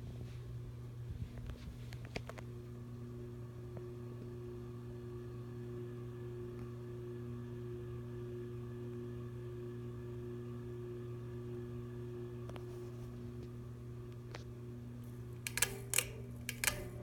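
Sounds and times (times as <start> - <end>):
ceiling fan motor humming: 0.0 - 17.0
light click: 15.4 - 17.0.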